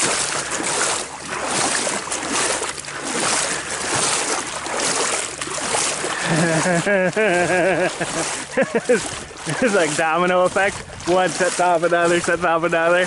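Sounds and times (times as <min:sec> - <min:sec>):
fish splashing in water: 0:00.0 - 0:13.0
wind on microphone: 0:10.4 - 0:11.5.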